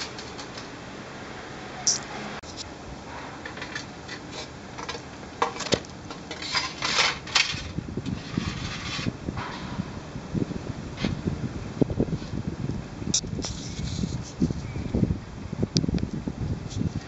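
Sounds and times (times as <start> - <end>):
metal tray scraping on asphalt: 2.1 - 10.0.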